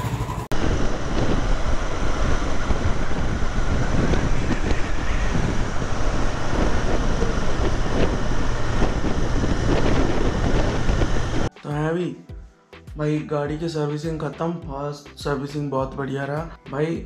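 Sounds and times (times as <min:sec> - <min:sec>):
motorcycle engine running: 0:00.0 - 0:11.5
wind rushing over microphone: 0:00.0 - 0:11.5.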